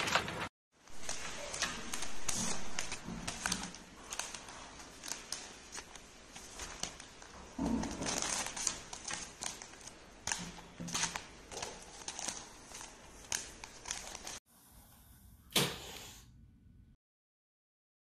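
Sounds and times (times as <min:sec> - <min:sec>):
newspaper rustling and crinkling: 0:00.0 - 0:14.4.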